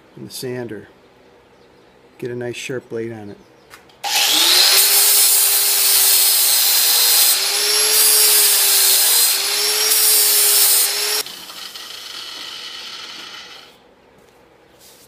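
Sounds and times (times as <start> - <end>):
angle grinder grinding steel: 4.0 - 13.8.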